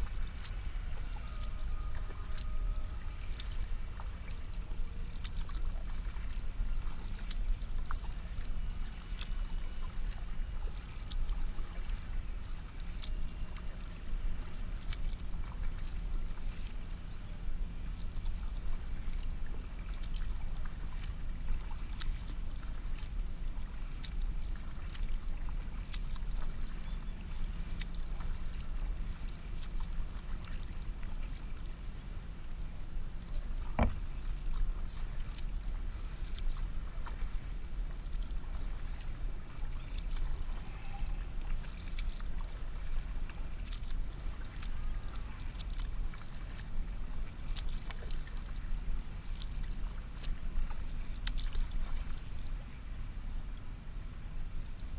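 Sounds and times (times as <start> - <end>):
paddle splashes: 0.0 - 54.9
steady low rumble: 0.0 - 54.9.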